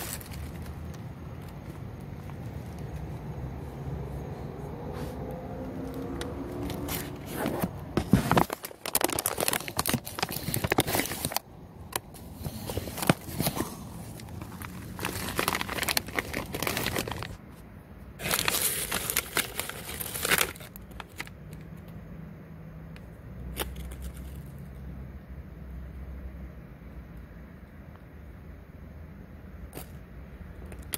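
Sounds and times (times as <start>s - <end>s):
chips rustling in bag: 0.0s - 1.5s, 8.0s - 11.4s, 12.2s - 17.4s, 18.2s - 21.4s
chip bag crinkling: 0.0s - 1.8s, 8.2s - 11.4s, 12.5s - 17.4s, 18.2s - 21.4s.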